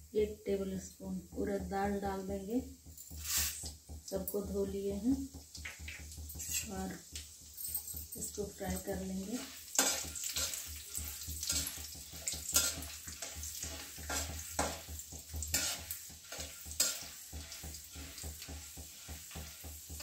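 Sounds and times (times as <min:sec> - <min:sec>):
lentils sizzling in oil: 0:00.0 - 0:20.0
spatula scraping a pan: 0:03.1 - 0:04.0, 0:05.8 - 0:08.0, 0:08.7 - 0:20.0.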